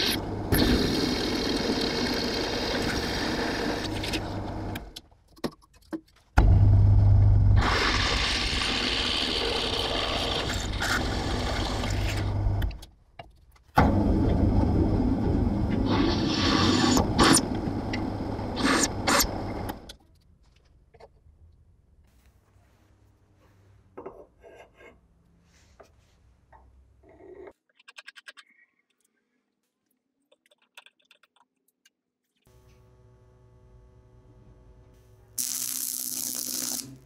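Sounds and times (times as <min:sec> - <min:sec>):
drill press motor hum: 0:00.0 - 0:05.0, 0:06.4 - 0:12.8, 0:13.8 - 0:19.9.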